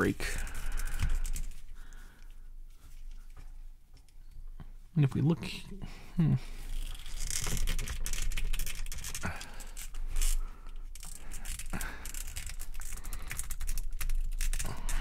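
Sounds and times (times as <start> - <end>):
plastic figure parts clicking: 6.7 - 15.0.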